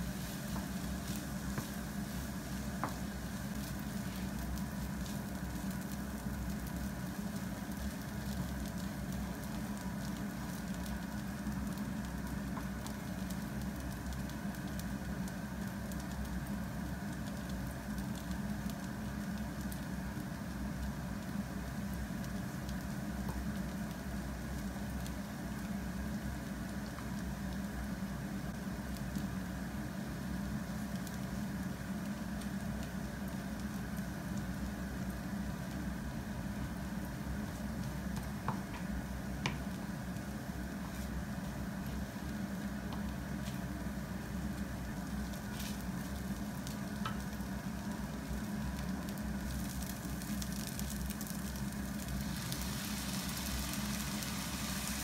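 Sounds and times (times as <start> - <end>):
fried rice sizzling in a frying pan: 0.0 - 55.0
wooden spatula stirring: 0.1 - 5.6.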